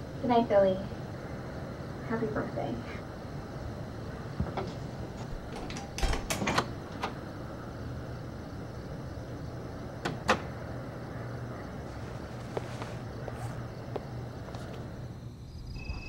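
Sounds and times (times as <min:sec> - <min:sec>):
steady low hum: 0:00.0 - 0:16.0
door latch clicking shut: 0:05.4 - 0:07.2, 0:10.0 - 0:10.5
scuffs and knocks: 0:11.9 - 0:14.8.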